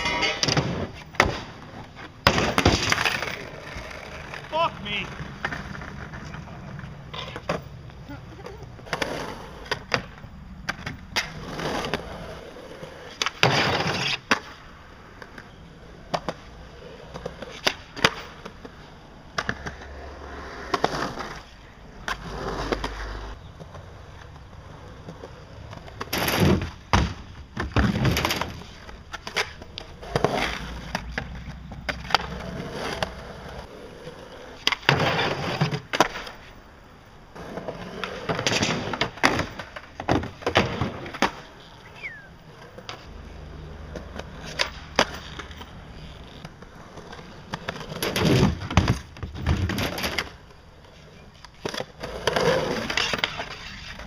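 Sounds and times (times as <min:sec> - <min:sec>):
skateboard clacks and impacts: 0:00.0 - 0:07.8, 0:15.2 - 0:33.7, 0:34.6 - 0:36.5, 0:37.4 - 0:43.1, 0:43.8 - 0:50.7
skateboard wheels rolling on concrete: 0:00.0 - 0:54.0.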